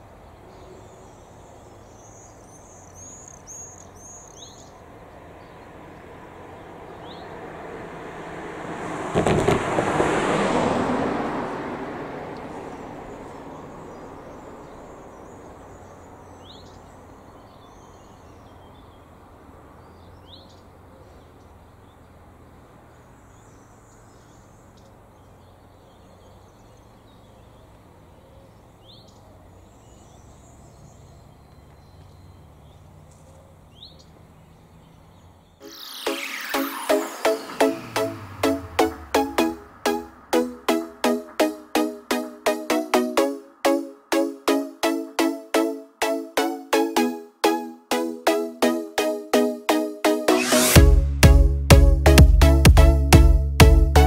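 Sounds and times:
bird chirping: 0.0 - 4.8, 23.2 - 43.8
car passing: 0.0 - 46.1.

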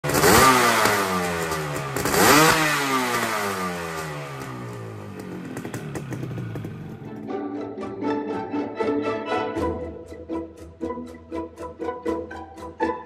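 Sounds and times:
two-stroke engine revving: 0.0 - 7.3.

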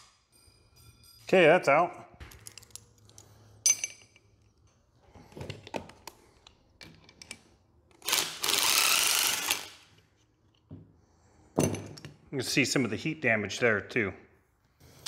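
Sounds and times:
metallic clinks of tools: 0.0 - 4.8.

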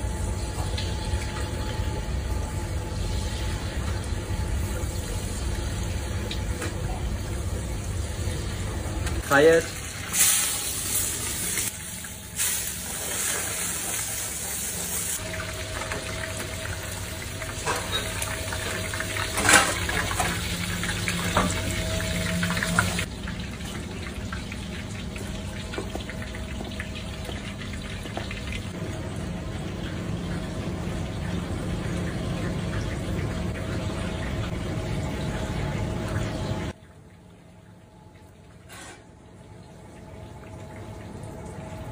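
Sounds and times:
food hissing in pans: 10.0 - 15.2.

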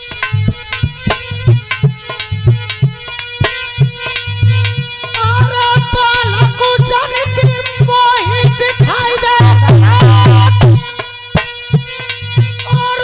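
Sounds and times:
hand drum rhythm: 0.0 - 13.0
harmonium: 0.0 - 13.0
deep bass thuds: 3.8 - 4.9.

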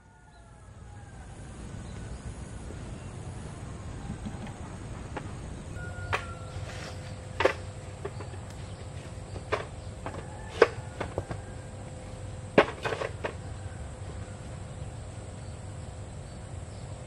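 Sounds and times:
faint steady background drone: 0.0 - 17.0
tools and wood knocking: 5.2 - 11.5, 12.6 - 13.4.

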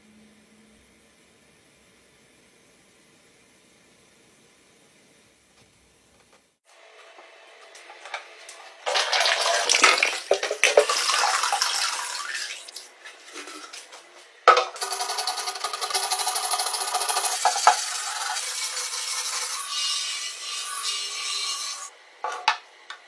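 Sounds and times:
scouring pad scrubbing metal: 14.8 - 19.8.

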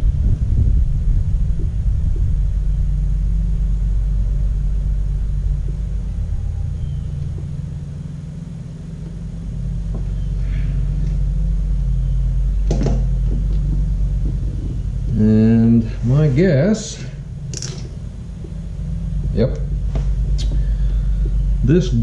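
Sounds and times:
engine running: 0.0 - 22.0
small metal parts clicking: 17.5 - 17.9.

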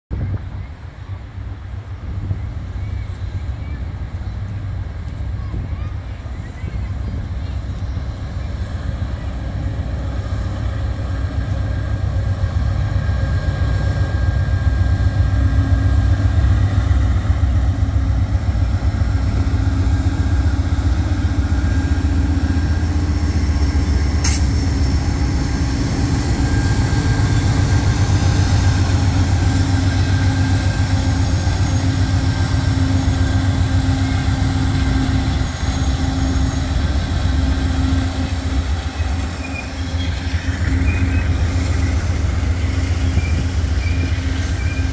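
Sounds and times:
diesel locomotives passing: 0.1 - 44.9
passenger cars rolling by: 14.8 - 44.9
sharp click: 24.2 - 24.6.

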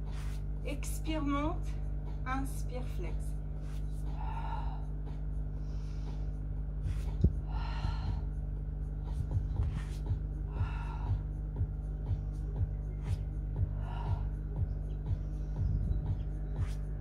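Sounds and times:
steady low hum: 0.0 - 17.0
heavy breathing: 4.0 - 8.4, 9.9 - 11.5, 13.6 - 14.7.

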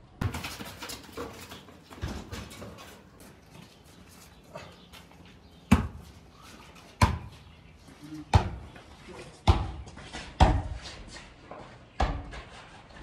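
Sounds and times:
basketball bouncing on concrete: 5.6 - 6.1, 7.0 - 7.5, 8.3 - 8.7, 9.4 - 10.9, 12.0 - 12.4.

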